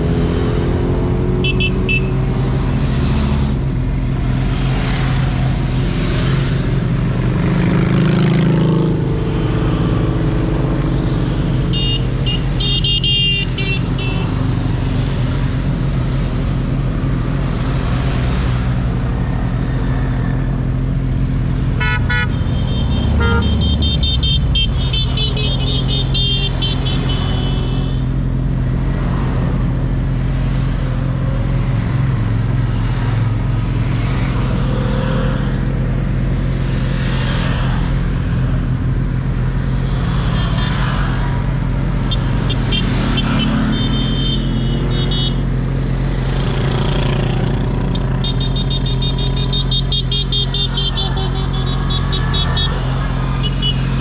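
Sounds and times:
horns beeping: 0:01.3 - 0:02.4, 0:10.6 - 0:14.6, 0:21.5 - 0:28.2, 0:42.0 - 0:45.6, 0:47.7 - 0:54.0.

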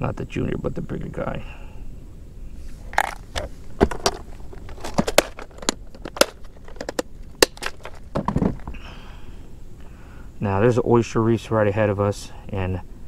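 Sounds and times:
plastic packaging clicks and crackles: 0:03.0 - 0:08.7.

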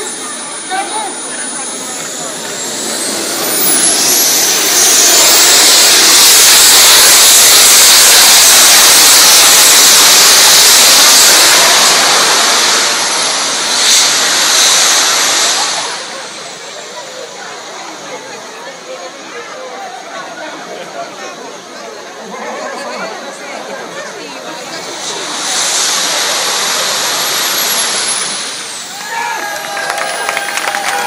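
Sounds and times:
short sharp burst: 0:00.0 - 0:16.8, 0:24.7 - 0:29.0
jet turbine whine and rush: 0:00.0 - 0:19.0, 0:23.5 - 0:31.0.

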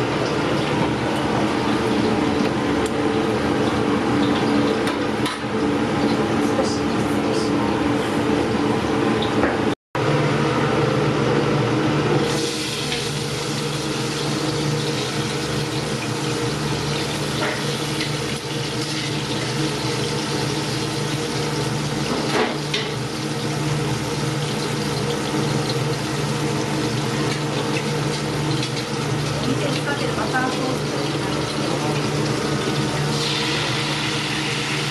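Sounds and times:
lobster sizzling in butter: 0:12.3 - 0:34.9.

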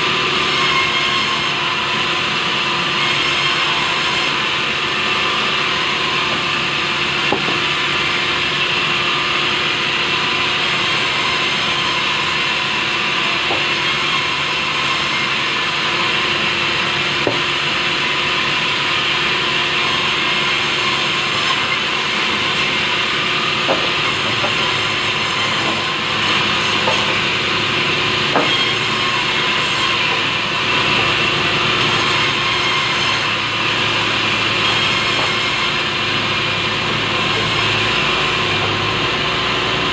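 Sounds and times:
band saw cutting timber: 0:00.0 - 0:39.9
boards knocking on table: 0:07.3 - 0:07.6, 0:17.2 - 0:17.4, 0:23.7 - 0:24.7, 0:26.8 - 0:27.3, 0:28.3 - 0:28.7.

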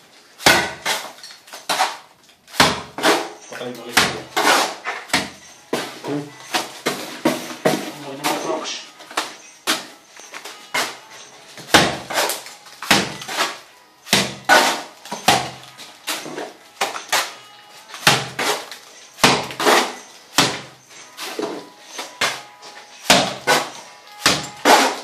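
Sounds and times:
trowel slapping mortar on wall: 0:00.4 - 0:05.4, 0:11.6 - 0:17.4, 0:18.0 - 0:20.7, 0:23.1 - 0:25.0.

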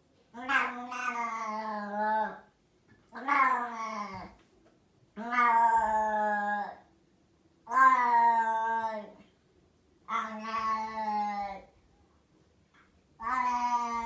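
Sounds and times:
cat meowing loudly: 0:00.4 - 0:02.4, 0:03.2 - 0:04.3, 0:05.2 - 0:06.8, 0:07.7 - 0:09.1, 0:10.1 - 0:11.7, 0:13.2 - 0:14.0.

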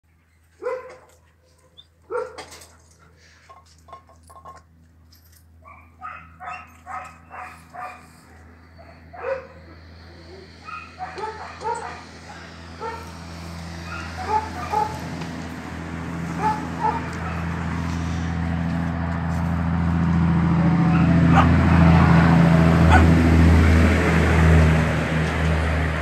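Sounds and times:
dog yipping: 0:00.6 - 0:01.0, 0:01.7 - 0:02.4, 0:05.6 - 0:08.0, 0:08.8 - 0:09.6, 0:10.6 - 0:12.1, 0:13.8 - 0:15.0, 0:16.4 - 0:17.4
dogs barking: 0:00.6 - 0:02.7, 0:05.6 - 0:17.9, 0:20.6 - 0:23.4.

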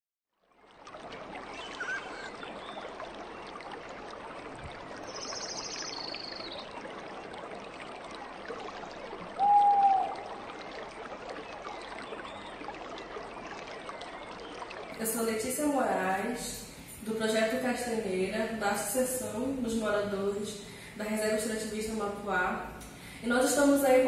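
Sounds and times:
running water: 0:00.4 - 0:24.0
short bird whistle: 0:09.4 - 0:10.1
bird trill: 0:09.4 - 0:10.2.

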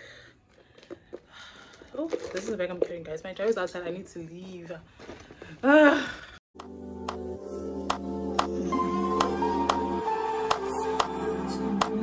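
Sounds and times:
light clicking beat: 0:06.6 - 0:08.6, 0:09.2 - 0:12.0
music with held notes: 0:06.6 - 0:12.0.

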